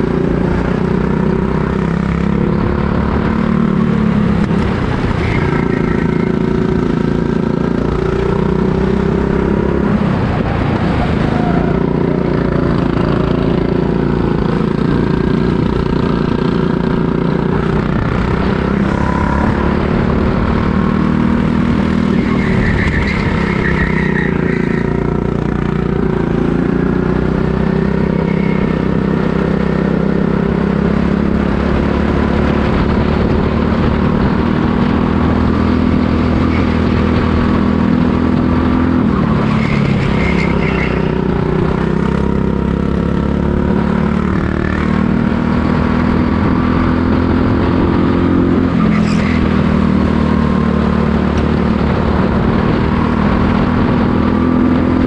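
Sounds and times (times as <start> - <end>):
go-kart engine revving: 0.0 - 37.0.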